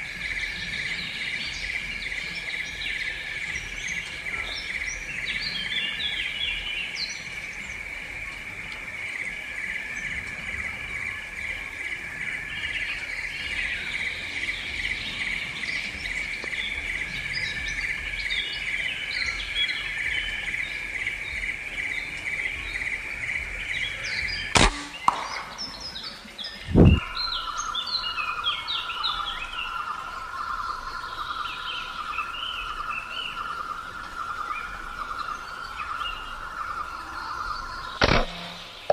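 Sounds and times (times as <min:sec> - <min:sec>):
birds chirping: 0:00.0 - 0:38.9
insects droning: 0:00.0 - 0:38.9
sharp crack: 0:24.6 - 0:26.0, 0:38.0 - 0:38.9.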